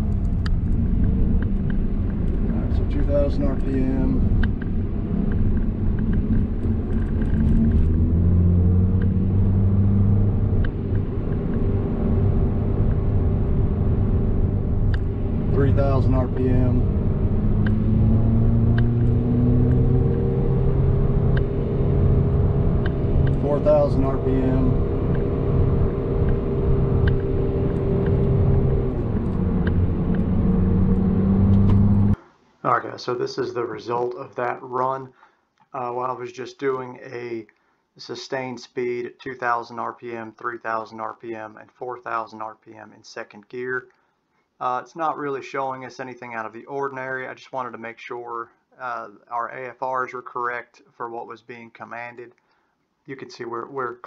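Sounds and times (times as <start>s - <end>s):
car engine revving in cabin: 0.0s - 32.2s
road noise: 0.0s - 32.2s.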